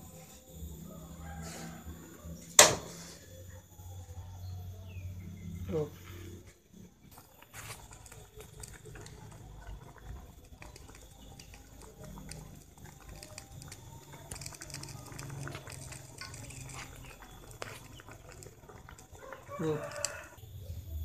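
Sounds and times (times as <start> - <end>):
fish sizzling in a wok: 7.2 - 20.5.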